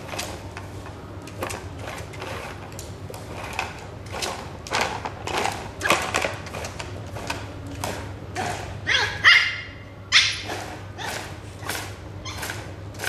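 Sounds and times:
small dog barking: 0:08.9 - 0:11.2.

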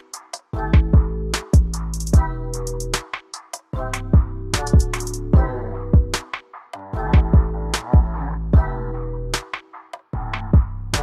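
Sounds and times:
electronic drums: 0:00.0 - 0:11.0
sustained bass line: 0:00.6 - 0:03.0, 0:03.8 - 0:06.2, 0:07.0 - 0:09.4, 0:10.2 - 0:11.0.

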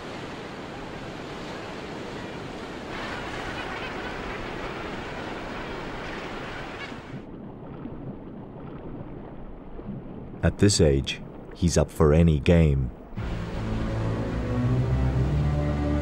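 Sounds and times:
ocean surf breaking: 0:00.0 - 0:07.2
muffled underwater rush: 0:02.4 - 0:16.0.

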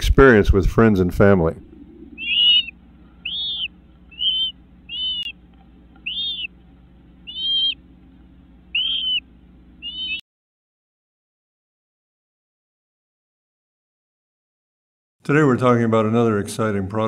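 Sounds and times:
faint steady low hum: 0:00.0 - 0:10.2
flycatchers giving short arched calls: 0:01.9 - 0:07.8, 0:08.7 - 0:10.2.

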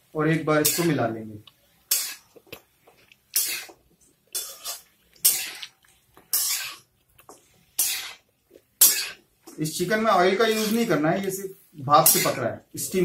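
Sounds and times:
metal spatula scraping pan: 0:06.3 - 0:06.8, 0:07.8 - 0:08.2, 0:10.2 - 0:11.0, 0:12.0 - 0:12.4.

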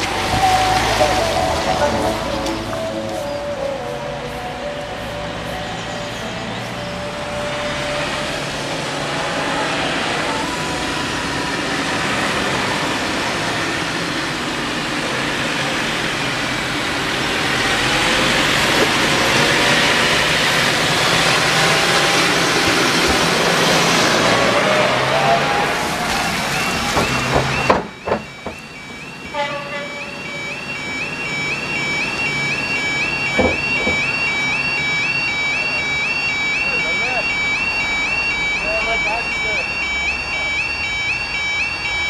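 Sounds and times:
tyre noise on wet road: 0:00.0 - 0:29.4
tractor diesel engine: 0:00.0 - 0:42.0.

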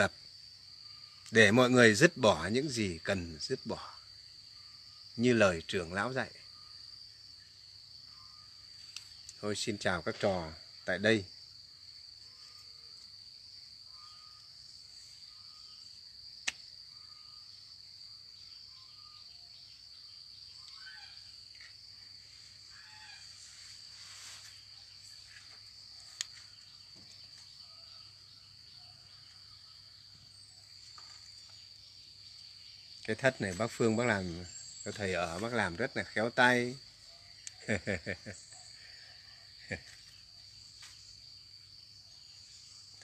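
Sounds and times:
high-pitched insect chorus: 0:00.0 - 0:43.0
sharp clicks: 0:16.4 - 0:16.7.

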